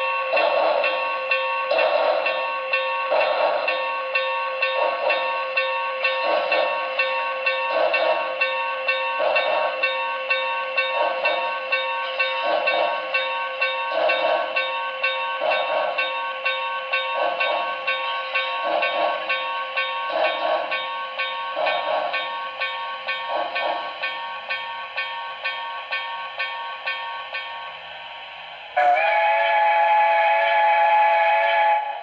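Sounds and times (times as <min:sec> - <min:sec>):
steam locomotive chuffs: 0:00.0 - 0:32.0
steady background hiss: 0:06.7 - 0:30.1.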